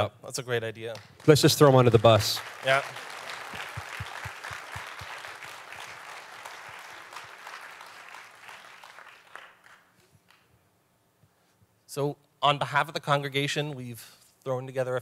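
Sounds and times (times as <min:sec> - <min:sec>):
congregation applauding: 0:00.9 - 0:10.5.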